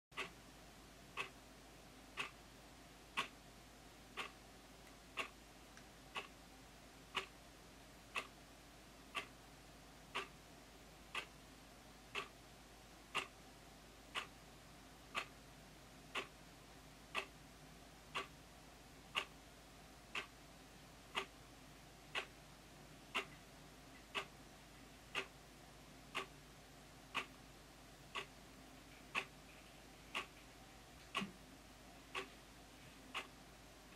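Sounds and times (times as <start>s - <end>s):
wall clock ticking: 0.1s - 0.4s, 1.1s - 1.4s, 2.1s - 2.4s, 3.1s - 3.4s, 4.1s - 6.4s, 7.0s - 7.4s, 8.1s - 8.4s, 9.1s - 9.4s, 10.1s - 10.4s, 11.1s - 11.4s, 12.1s - 12.4s, 13.0s - 15.4s, 16.1s - 16.4s, 17.0s - 17.4s, 18.0s - 18.4s, 19.1s - 19.4s, 20.1s - 20.4s, 21.0s - 22.4s, 23.0s - 25.4s, 26.0s - 31.4s, 32.0s - 33.9s.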